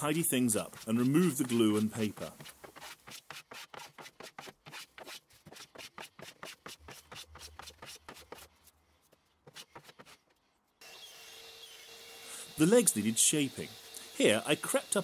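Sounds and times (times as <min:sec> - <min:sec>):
hand plane rasping wood: 0:00.3 - 0:08.5.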